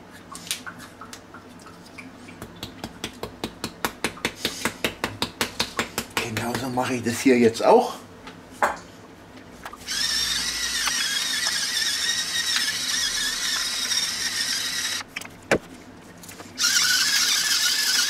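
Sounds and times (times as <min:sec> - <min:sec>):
spice mill grinding: 0:09.9 - 0:15.0, 0:16.6 - 0:18.0.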